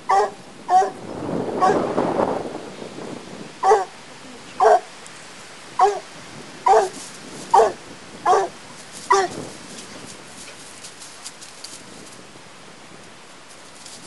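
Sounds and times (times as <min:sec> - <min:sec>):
dog barking sharply: 0:00.1 - 0:01.0, 0:03.6 - 0:03.9, 0:04.6 - 0:04.9, 0:05.8 - 0:06.0, 0:06.7 - 0:08.5, 0:09.1 - 0:09.3
rough rustling: 0:05.8 - 0:14.0.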